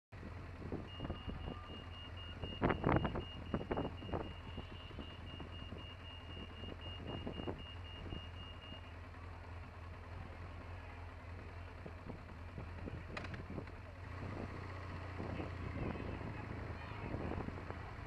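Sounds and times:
motorcycle engine idling: 0.2s - 18.0s
crossing signal beeping: 0.8s - 9.2s.

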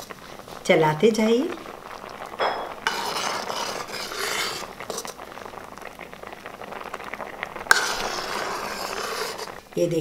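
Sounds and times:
ladle stirring and scraping pot: 2.4s - 5.3s, 7.5s - 9.8s.

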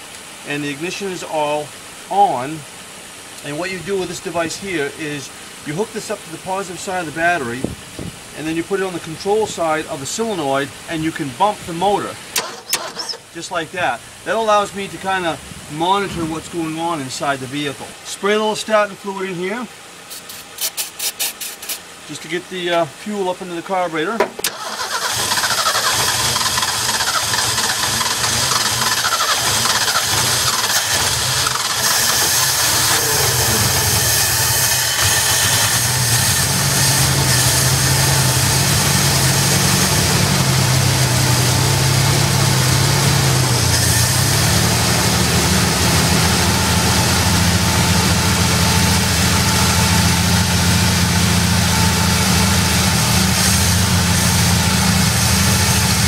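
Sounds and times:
engine idling: 24.3s - 56.0s.

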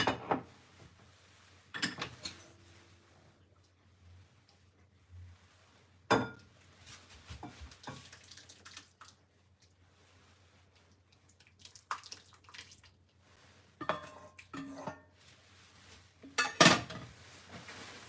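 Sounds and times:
broth splashing and dripping: 7.6s - 9.8s, 11.0s - 13.2s.

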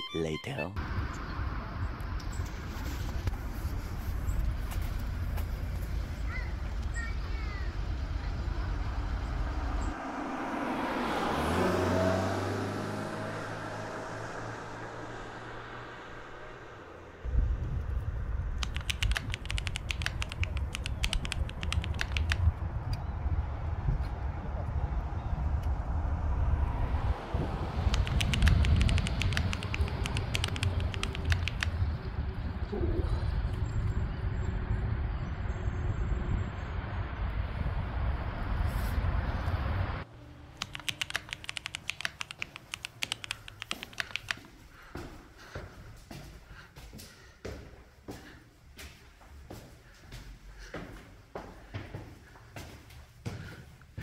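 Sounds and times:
loud outdoor rumble: 0.8s - 44.9s
low rumble: 14.1s - 18.6s
sharp clicks inside car: 27.9s - 31.8s, 40.6s - 44.4s.

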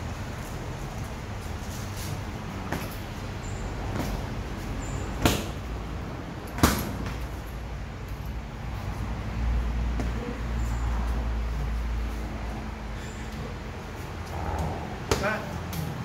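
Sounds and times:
boxing gloves hitting pads: 2.6s - 5.8s, 6.5s - 7.4s, 9.8s - 10.4s, 14.6s - 16.0s.

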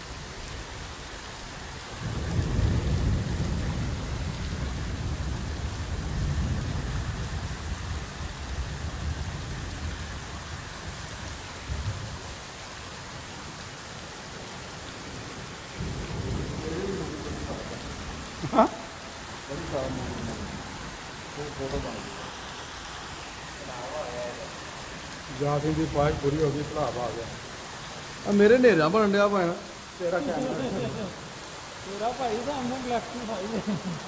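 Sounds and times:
heavy rain pouring: 0.0s - 34.0s
thunder rumbling: 2.0s - 12.3s, 15.1s - 22.4s, 23.4s - 28.8s.

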